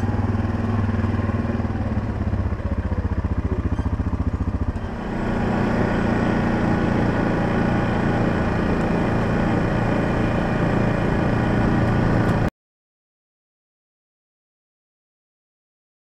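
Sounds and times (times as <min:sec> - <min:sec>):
quad bike engine running: 0:00.0 - 0:12.5.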